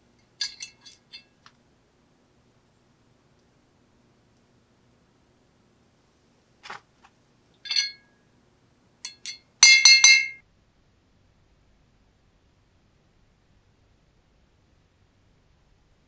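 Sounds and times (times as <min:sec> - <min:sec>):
metal clinking against glass jar: 0:00.2 - 0:01.4, 0:07.6 - 0:08.1, 0:09.0 - 0:10.4.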